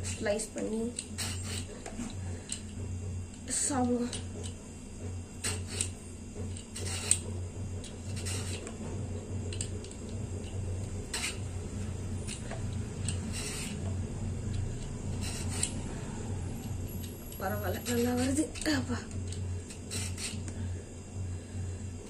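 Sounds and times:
hand peeler scraping gourd skin: 0:00.0 - 0:02.6, 0:05.4 - 0:06.0, 0:06.6 - 0:07.3, 0:07.9 - 0:08.8, 0:11.0 - 0:13.9, 0:14.6 - 0:20.5.

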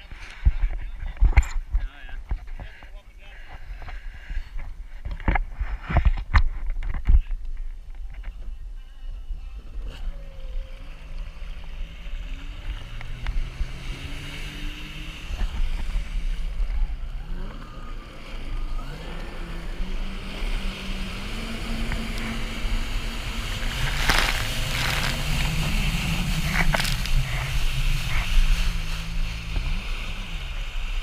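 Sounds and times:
watercraft engine revving: 0:18.6 - 0:30.2
water spray hissing and splashing: 0:23.3 - 0:29.5.

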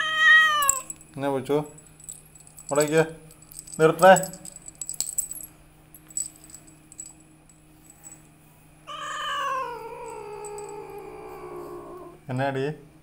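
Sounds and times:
cat meowing: 0:00.0 - 0:00.9, 0:08.9 - 0:12.2.

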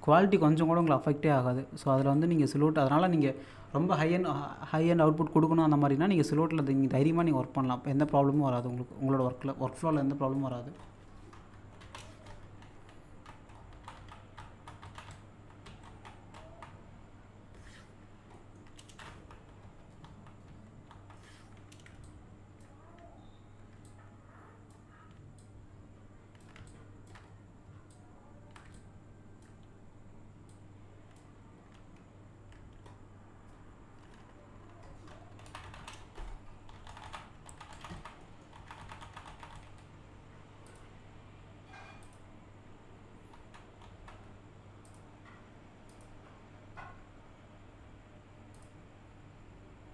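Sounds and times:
steady low hum: 0:00.0 - 0:49.9
computer mouse and keyboard clicks: 0:08.3 - 0:16.8, 0:17.5 - 0:23.1, 0:26.3 - 0:29.7, 0:30.4 - 0:39.9.

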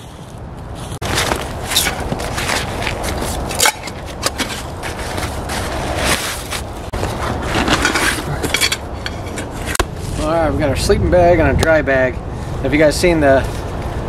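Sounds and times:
fabric rustling and crinkling: 0:00.9 - 0:08.5.

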